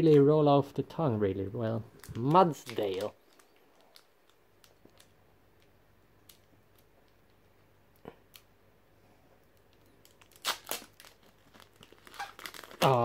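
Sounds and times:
foil wrapper crinkling and tearing: 0:02.0 - 0:05.2, 0:10.0 - 0:13.0.

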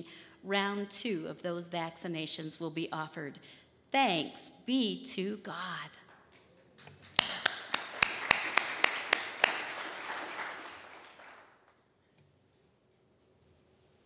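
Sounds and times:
close sharp hand claps: 0:06.1 - 0:11.9
congregation applauding: 0:07.0 - 0:11.9.

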